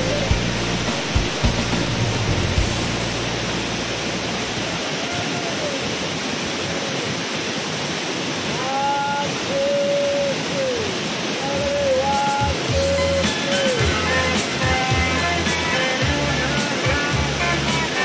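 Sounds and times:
waterfall rushing: 0.0s - 18.0s
held gliding melody notes: 11.7s - 18.0s.

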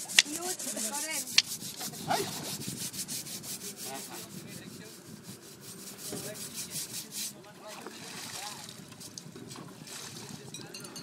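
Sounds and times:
rasping scrubbing strokes on skin: 0.0s - 7.4s.

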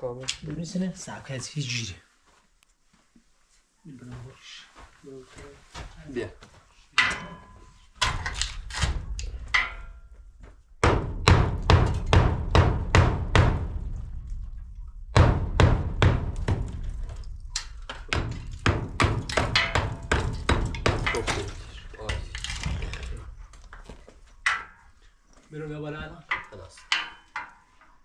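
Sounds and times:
hammer knocking on steel frame: 10.8s - 14.1s, 15.1s - 22.2s.

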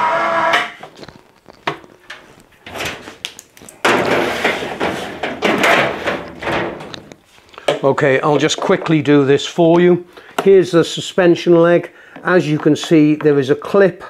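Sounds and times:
metal and plastic parts clattering: 0.9s - 9.0s.

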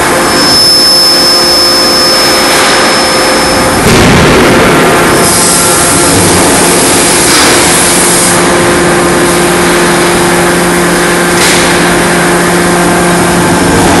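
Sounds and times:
machinery hum and roar: 0.0s - 14.0s.

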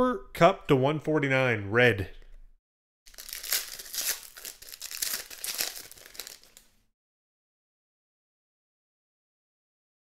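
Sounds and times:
foil wrapper crinkling and tearing: 3.1s - 6.8s.

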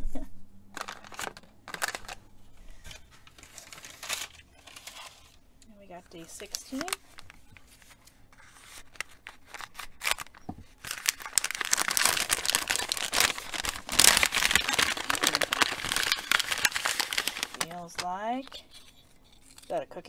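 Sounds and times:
paper packet crinkling: 0.7s - 5.4s, 6.1s - 19.8s.

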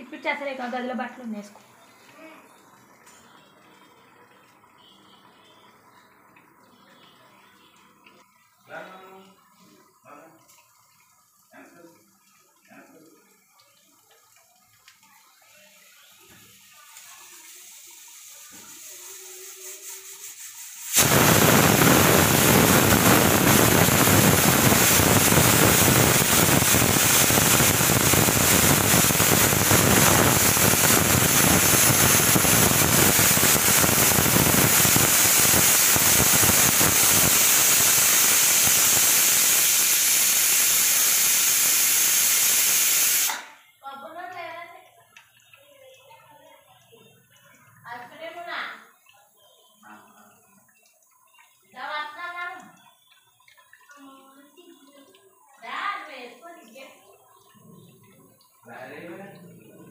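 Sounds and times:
pressure cooker steam hissing: 16.6s - 43.6s.

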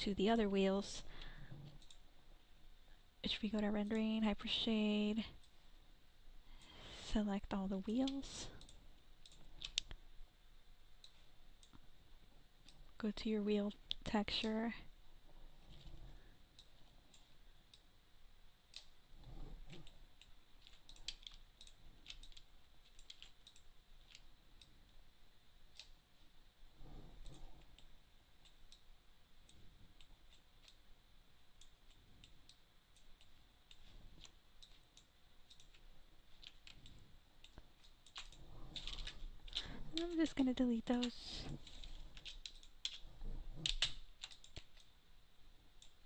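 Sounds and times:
computer mouse clicks: 1.2s - 2.0s, 7.9s - 10.0s, 18.7s - 24.8s, 25.7s - 26.0s, 27.0s - 30.8s, 31.6s - 44.9s.

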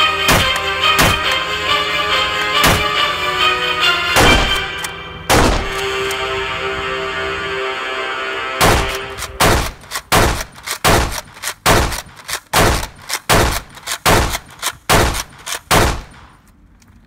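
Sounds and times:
gunshot bangs: 0.3s - 1.4s, 2.6s - 3.0s, 4.2s - 5.8s, 8.6s - 16.3s.

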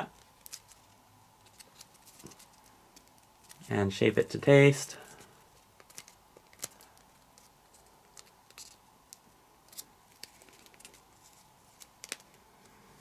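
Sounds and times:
paper crinkling: 0.1s - 3.7s, 5.0s - 8.8s, 9.7s - 12.4s.

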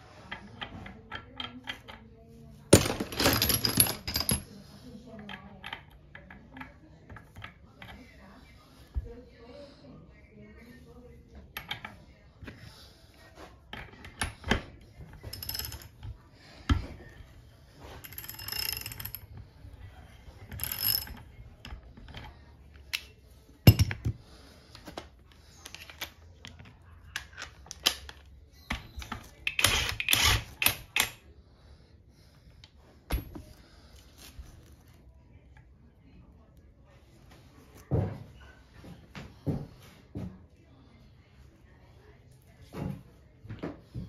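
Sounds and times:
metal parts clicking and clinking: 2.7s - 4.5s, 18.0s - 19.3s
metal parts rattling: 2.7s - 4.5s.

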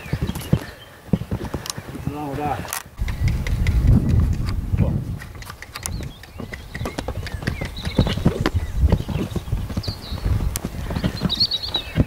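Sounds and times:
hooves thudding on sand: 0.0s - 12.0s.

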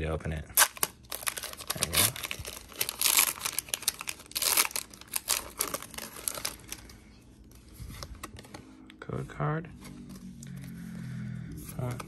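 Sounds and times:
foil wrapper crinkling and tearing: 0.6s - 7.0s.

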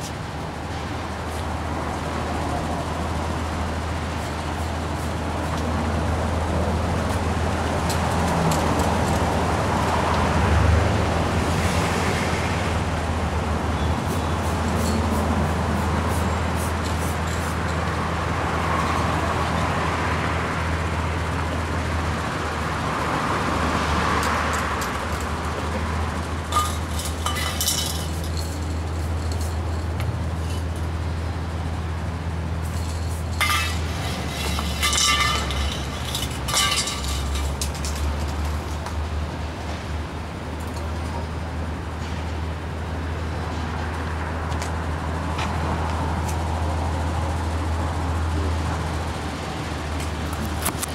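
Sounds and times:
low rumble of street traffic: 0.0s - 50.9s
sharp metallic clink: 32.7s - 37.7s.

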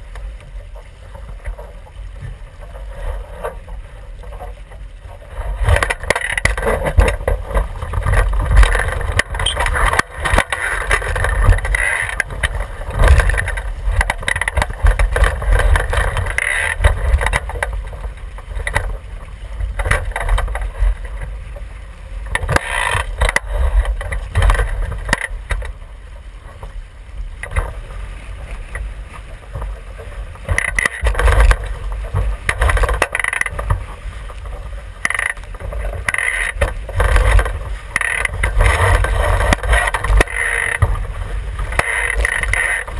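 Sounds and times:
water rushing along a hull: 0.0s - 42.9s
wind rumbling on microphone: 0.0s - 42.9s.

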